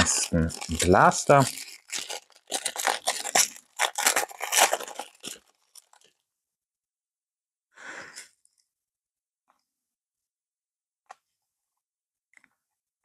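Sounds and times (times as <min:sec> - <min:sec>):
foil wrapper tearing and crinkling: 0:00.0 - 0:06.2.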